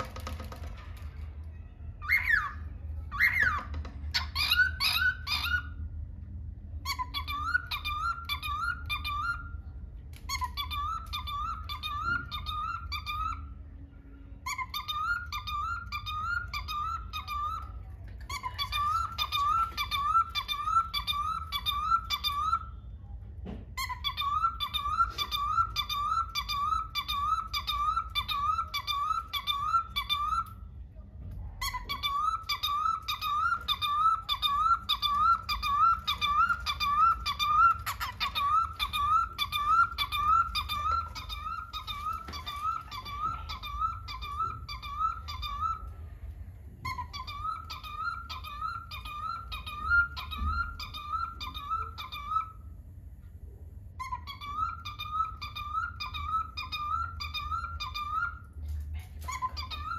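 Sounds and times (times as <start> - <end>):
cockatiel chirping: 2.0 - 6.0, 6.8 - 13.6, 14.4 - 22.8, 23.7 - 30.6, 31.6 - 46.0, 46.7 - 52.7, 54.0 - 59.9.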